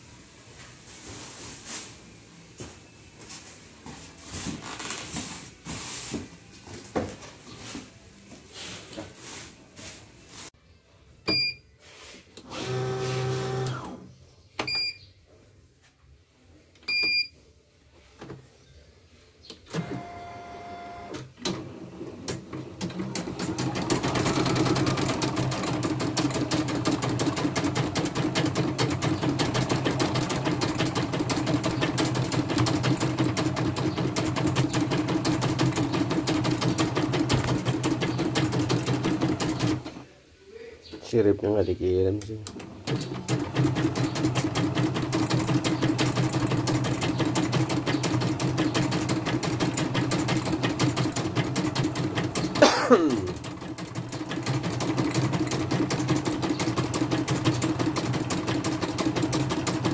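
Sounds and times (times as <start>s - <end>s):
embroidery machine stitching: 12.4s - 14.0s, 19.7s - 40.0s, 42.5s - 59.9s.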